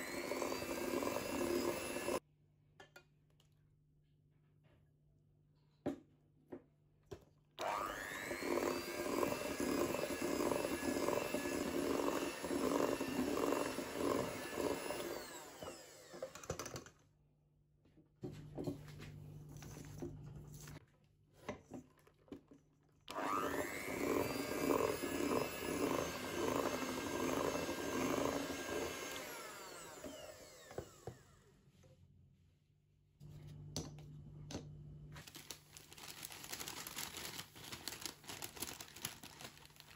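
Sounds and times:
electric hand mixer whirring: 0:00.0 - 0:02.2, 0:07.6 - 0:16.8, 0:23.1 - 0:31.4.

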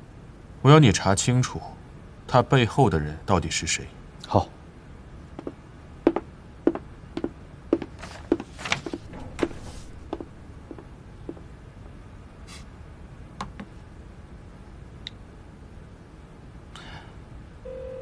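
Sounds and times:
footsteps on wooden floor: 0:05.4 - 0:11.5.

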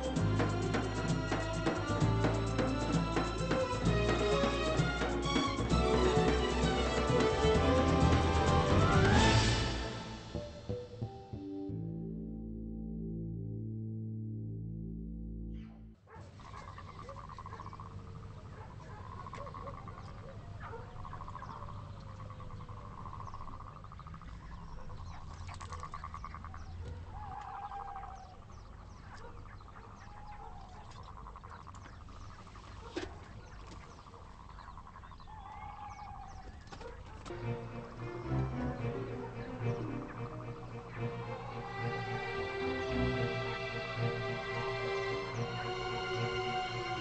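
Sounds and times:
frogs croaking: 0:16.1 - 0:47.0.

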